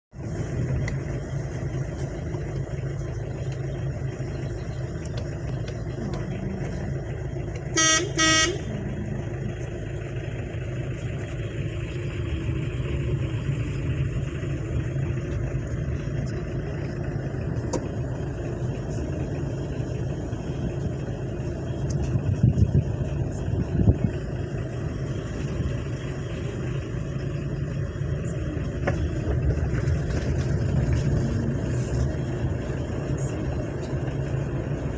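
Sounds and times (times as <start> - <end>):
car engine and road noise: 0.1 - 34.9
car horn toots: 7.7 - 8.7.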